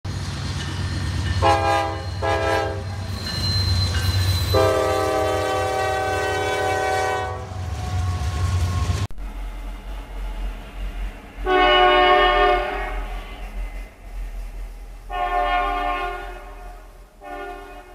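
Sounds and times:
locomotive engine rumble: 0.1s - 17.9s
locomotive air horn blasts: 1.4s - 3.0s, 4.5s - 8.9s, 11.4s - 13.4s, 15.1s - 17.9s.

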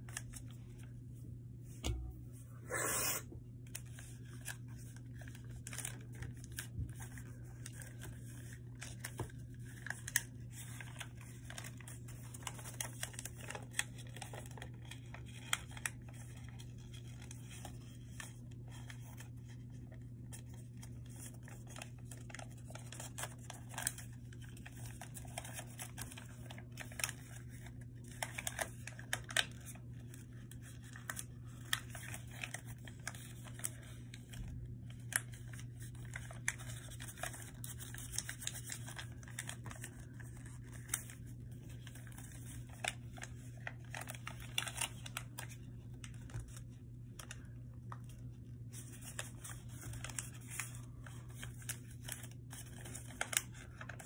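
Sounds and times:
paper folding and crinkling: 0.0s - 2.4s, 3.6s - 54.0s
steady low hum: 0.0s - 10.5s.

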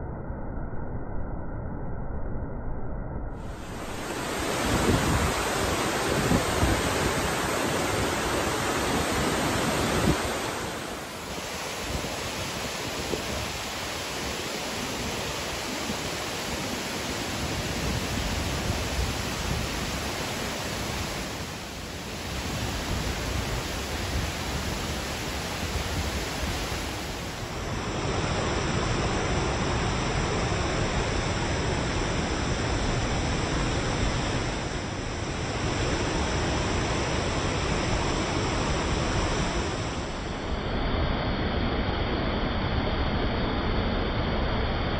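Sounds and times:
waterfall rushing: 3.5s - 39.8s.

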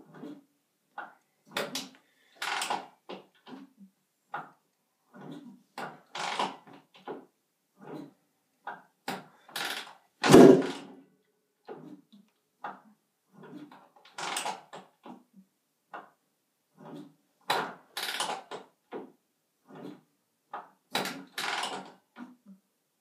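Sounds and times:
motorcycle kick-start thump: 10.2s - 10.9s.

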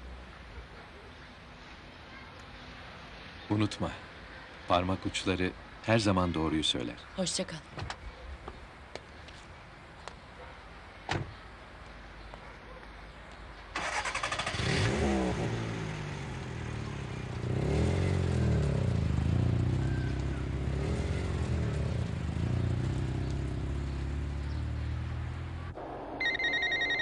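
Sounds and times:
car starter cranking: 13.8s - 14.6s
car engine revving: 13.9s - 19.8s, 20.6s - 26.1s.

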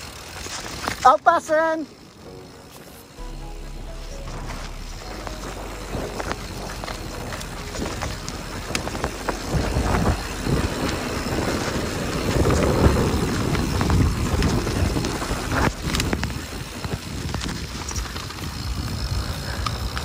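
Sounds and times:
bike clicks and rattles: 0.0s - 3.2s, 4.3s - 20.0s
tyres rolling on dirt: 0.0s - 3.2s, 4.0s - 20.0s
wind buffeting microphone: 5.0s - 20.0s.

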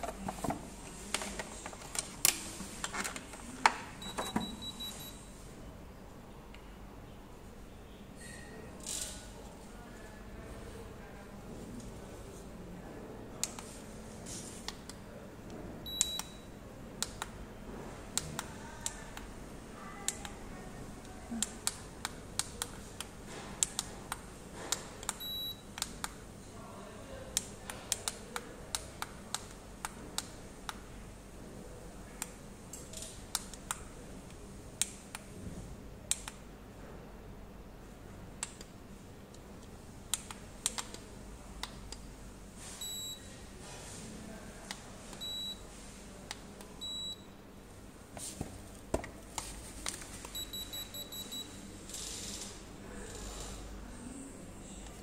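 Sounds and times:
thermometer buttons clicking: 15.9s - 16.4s.

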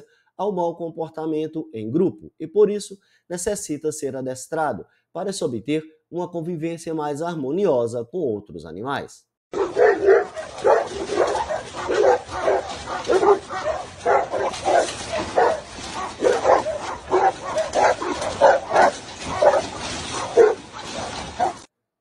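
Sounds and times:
large dogs barking: 9.5s - 21.7s.

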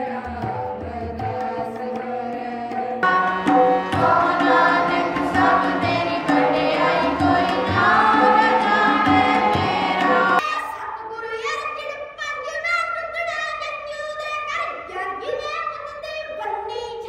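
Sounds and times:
girls singing together: 0.0s - 11.0s
harmonium drone: 3.0s - 10.4s.

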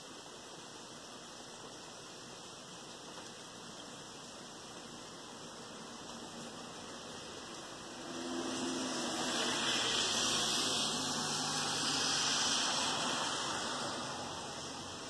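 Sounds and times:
rain hiss: 0.0s - 15.0s
car tyres hissing through water: 4.0s - 15.0s.

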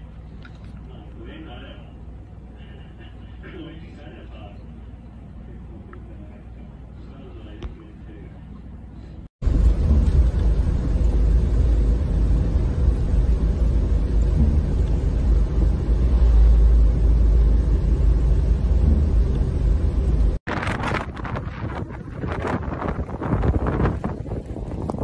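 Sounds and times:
vehicle rumble on snowy road: 8.8s - 25.0s
wind gusting on microphone: 9.4s - 25.0s.

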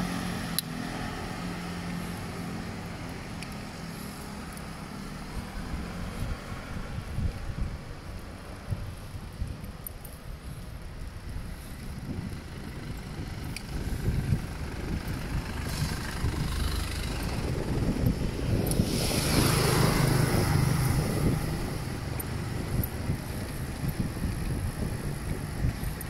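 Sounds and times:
traffic engine rumble: 0.0s - 26.0s
vehicle passing close: 12.6s - 26.0s.

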